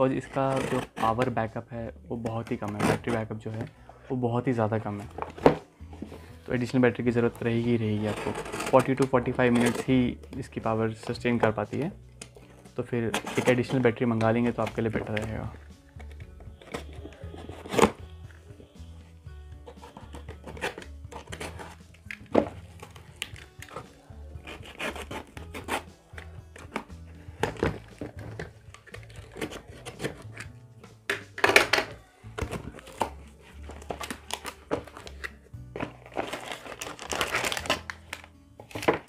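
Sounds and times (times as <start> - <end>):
cardboard and paper tearing: 0.3 - 1.3, 7.9 - 9.9, 13.1 - 13.8, 16.6 - 18.0, 19.6 - 21.8, 22.4 - 26.8, 27.4 - 30.4, 32.4 - 39.0.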